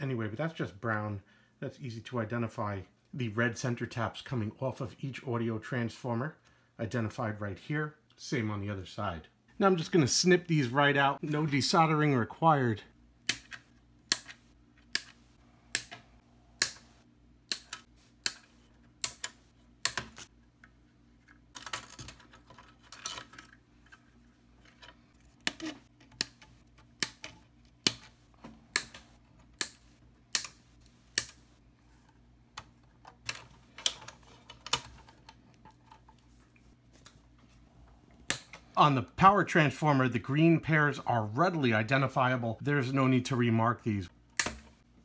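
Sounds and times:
side cutters snipping wire: 13.2 - 16.9, 17.5 - 20.3, 28.7 - 31.4.

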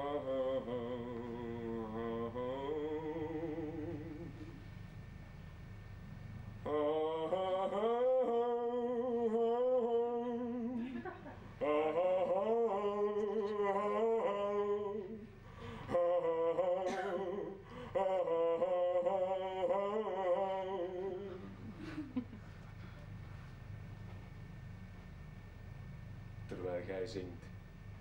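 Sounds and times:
man singing long held notes: 0.0 - 4.6, 6.6 - 22.1.

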